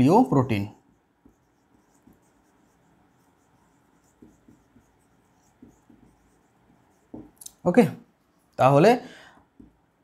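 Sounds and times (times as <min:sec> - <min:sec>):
pen scratching on a surface: 0:00.7 - 0:07.4.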